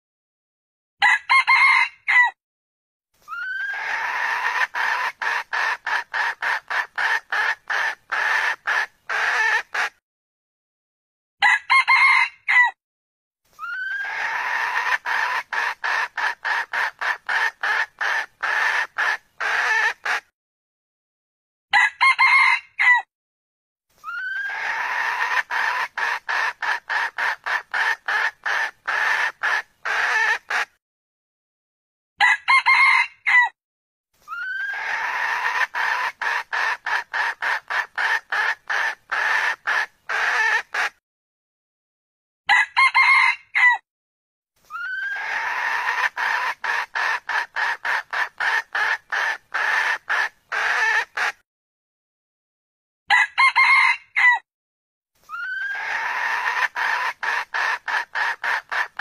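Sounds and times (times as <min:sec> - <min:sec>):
junglefowl crowing: 0:01.0 - 0:02.4, 0:03.3 - 0:09.9, 0:11.4 - 0:12.8, 0:13.6 - 0:20.3, 0:21.7 - 0:23.1, 0:24.0 - 0:30.7, 0:32.2 - 0:33.6, 0:34.3 - 0:40.9, 0:42.5 - 0:43.8, 0:44.7 - 0:51.4, 0:53.1 - 0:54.4, 0:55.3 - 0:59.0
junglefowl rapid clucks: 0:03.5 - 0:10.0, 0:13.7 - 0:20.3, 0:24.2 - 0:30.7, 0:34.5 - 0:41.0, 0:44.9 - 0:51.4, 0:55.4 - 0:59.0.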